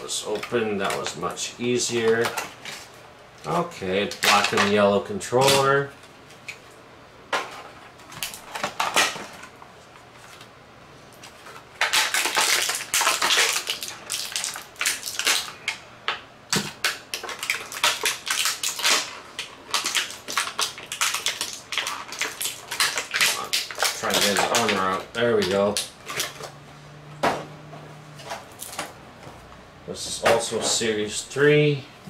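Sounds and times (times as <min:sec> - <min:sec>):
plastic packaging crackling: 0:00.0 - 0:06.6, 0:08.0 - 0:09.6, 0:11.2 - 0:15.8, 0:16.5 - 0:26.6.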